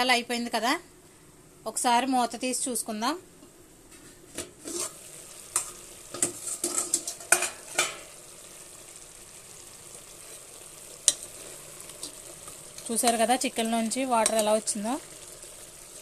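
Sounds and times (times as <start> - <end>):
chicken sizzling: 4.1 - 16.0.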